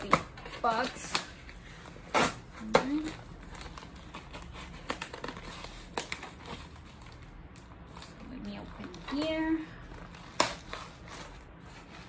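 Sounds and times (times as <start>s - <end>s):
cardboard box crinkling: 2.6s - 12.0s.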